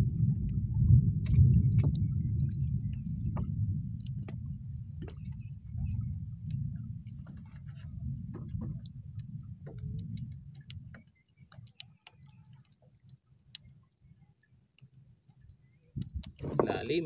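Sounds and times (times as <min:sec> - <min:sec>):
wind and water rumble: 0:00.0 - 0:17.0
light clicks and taps: 0:06.4 - 0:14.1, 0:14.7 - 0:16.9.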